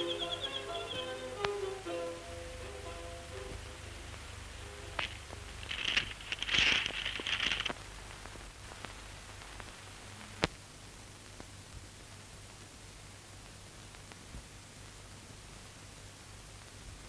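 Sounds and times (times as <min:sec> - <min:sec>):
film soundtrack hiss and crackle: 0:00.0 - 0:17.0
rustling scraping noise: 0:04.9 - 0:07.8.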